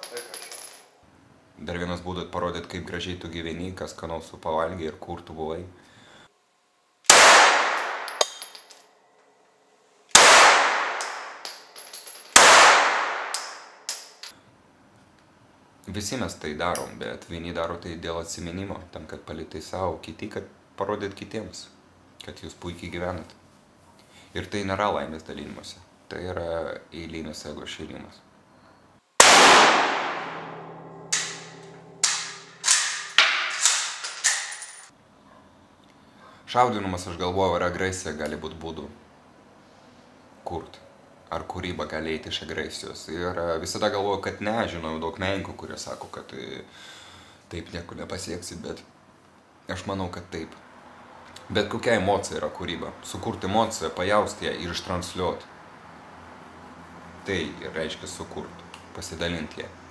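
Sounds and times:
metallic clinks of spent cases: 0:00.0 - 0:01.0, 0:07.8 - 0:09.0, 0:31.2 - 0:34.9
rifle shots echoing indoors: 0:07.1 - 0:08.4, 0:10.1 - 0:11.5, 0:12.3 - 0:13.9, 0:29.2 - 0:34.5.

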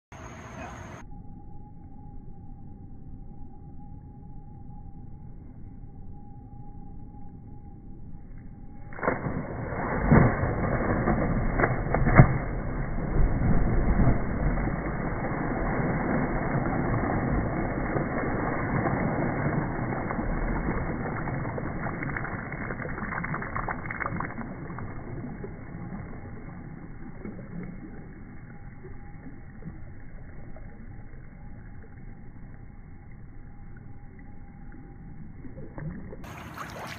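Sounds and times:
faint steady hum: 0:00.1 - 0:36.9
slowed-down pool splash: 0:07.5 - 0:36.9
water slaps: 0:08.9 - 0:23.0, 0:35.8 - 0:36.9.

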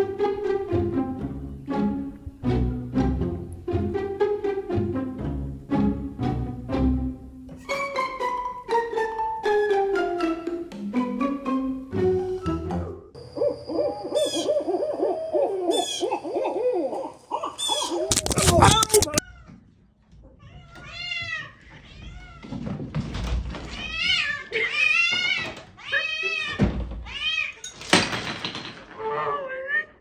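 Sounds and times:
owls calling: 0:13.2 - 0:18.2
cats meowing: 0:16.9 - 0:22.6, 0:23.6 - 0:27.8, 0:29.0 - 0:30.0.

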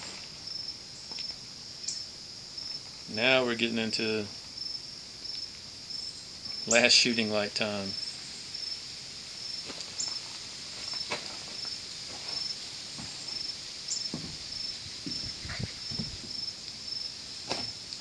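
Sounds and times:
insect chirping: 0:00.0 - 0:18.0
faint rustles and knocks: 0:09.6 - 0:16.5.

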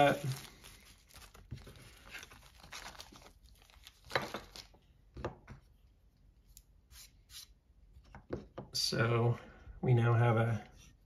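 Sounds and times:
packaging crinkling: 0:00.0 - 0:04.8.

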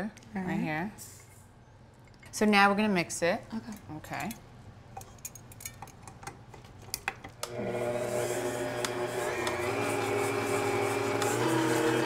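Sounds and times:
stand mixer motor humming: 0:07.5 - 0:12.0.

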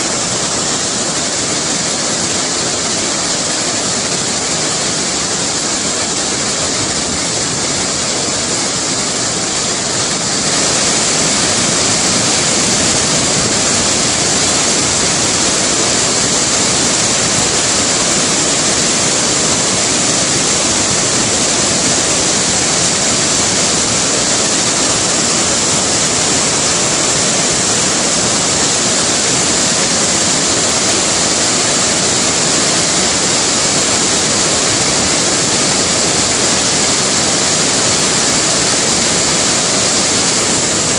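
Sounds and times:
waterfall rushing: 0:00.0 - 0:40.9.

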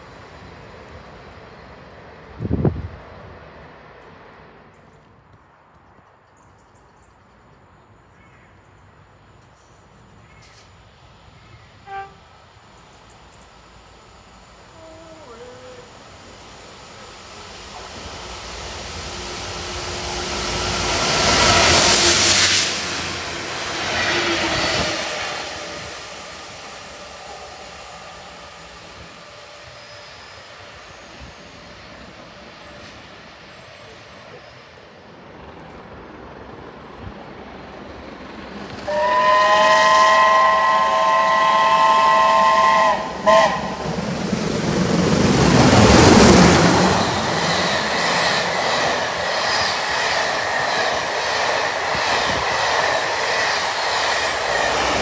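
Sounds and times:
approaching train noise: 0:00.0 - 0:55.0
diesel locomotive passing: 0:00.0 - 0:55.0
steam locomotive whistle: 0:11.8 - 0:12.3, 0:38.8 - 0:44.0.

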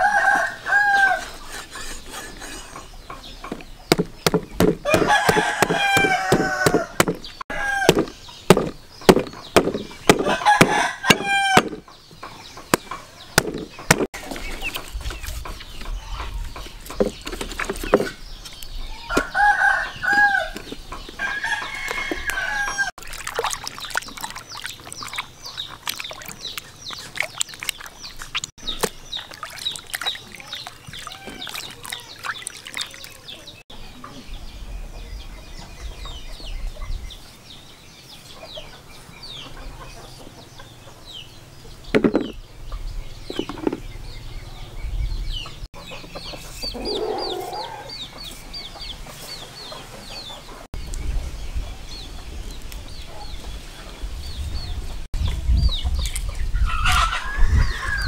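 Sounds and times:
rooster crowing: 0:00.0 - 0:01.3, 0:04.8 - 0:08.0, 0:10.2 - 0:11.7, 0:19.1 - 0:20.6, 0:21.2 - 0:22.9
chickens clucking: 0:00.1 - 0:22.9, 0:38.2 - 0:44.8, 0:45.4 - 0:50.7, 0:54.6 - 0:58.0
sharp knocks: 0:03.1 - 0:11.9, 0:12.6 - 0:14.2, 0:42.0 - 0:42.4.

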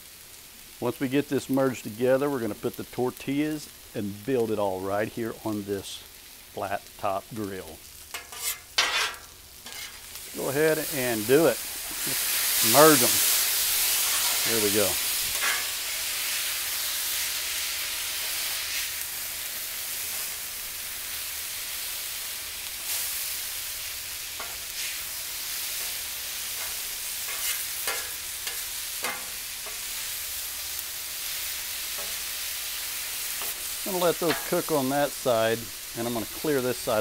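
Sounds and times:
food sizzling on a griddle: 0:00.0 - 0:37.0
metal spatula scraping and tapping: 0:08.1 - 0:10.1, 0:15.4 - 0:15.7, 0:26.6 - 0:29.8, 0:32.0 - 0:32.2, 0:34.2 - 0:34.6.

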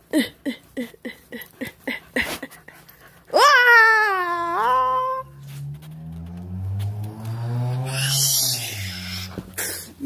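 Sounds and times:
high-pitched wailing cry: 0:03.3 - 0:05.4, 0:07.8 - 0:09.4.

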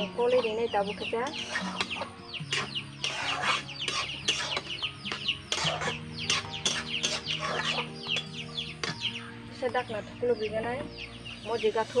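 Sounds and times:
chickens clucking and peeping: 0:00.0 - 0:12.0
metal spatula scraping a wok: 0:01.2 - 0:09.0.

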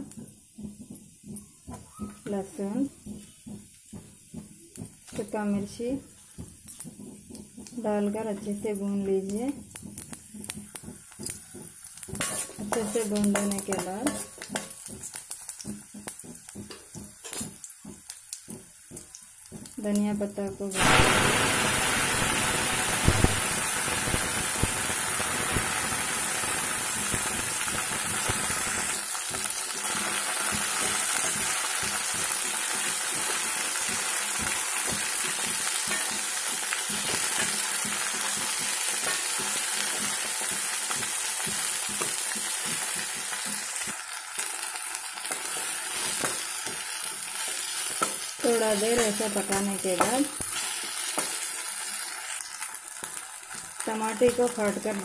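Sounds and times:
leaves sizzling in hot oil: 0:00.0 - 0:55.0
metal spatula scraping a pan: 0:12.0 - 0:15.0.

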